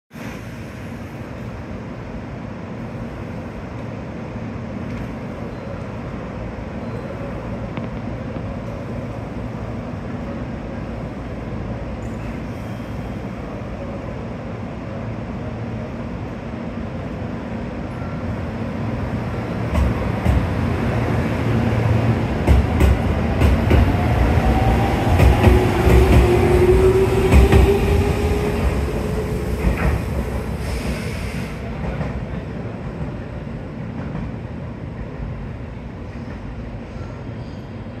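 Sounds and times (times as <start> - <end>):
electric train humming: 13.4 - 35.7.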